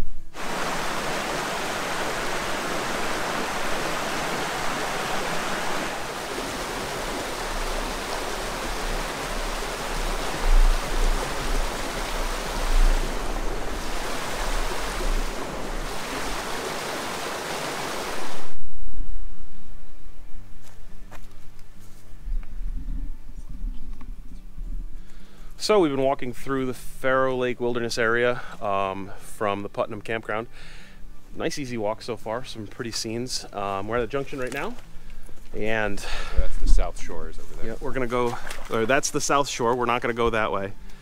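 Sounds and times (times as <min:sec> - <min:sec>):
stream rushing over rocks: 0:00.4 - 0:18.6.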